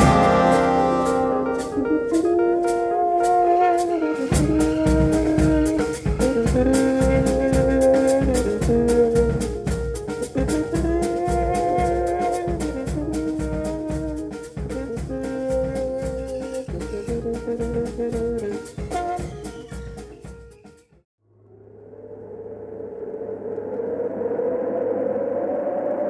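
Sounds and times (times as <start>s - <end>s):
horn section holding chords: 0.0s - 20.4s
bass and drums: 0.0s - 21.0s
percussion pulse: 0.0s - 25.8s.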